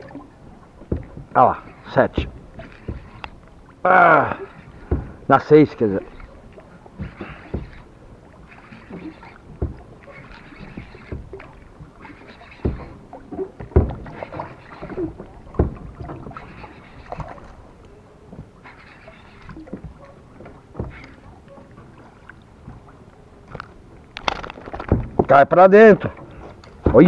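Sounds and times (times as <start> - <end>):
water lapping against boat hull: 0.0 - 27.0
gear knocking against hull: 0.8 - 3.3, 4.6 - 6.4, 7.0 - 7.9, 8.5 - 17.4, 24.2 - 27.0.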